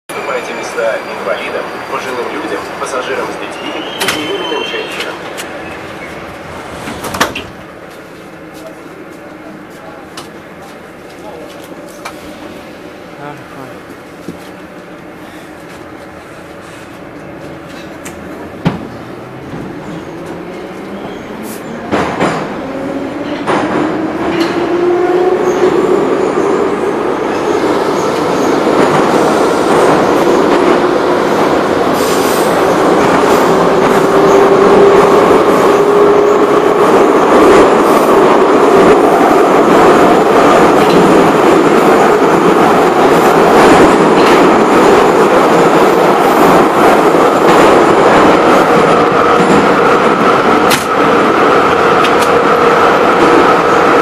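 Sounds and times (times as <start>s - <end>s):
subway motor whine: 0.1s - 54.0s
wheels rumbling on rails: 4.8s - 12.4s.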